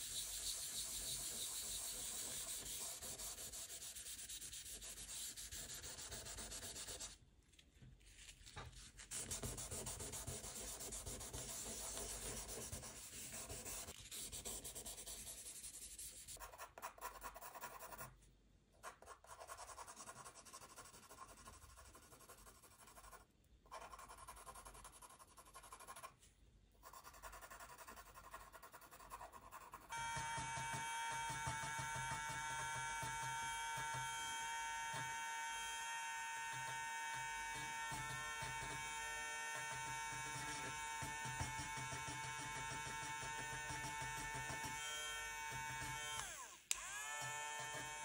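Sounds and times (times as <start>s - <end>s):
pencil shading on paper: 0.0s - 7.2s, 9.1s - 18.1s, 18.8s - 26.1s, 26.8s - 30.7s.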